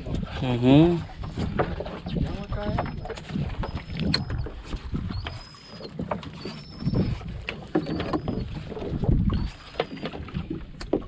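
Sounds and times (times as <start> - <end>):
short high squeak: 5.1 - 7.2.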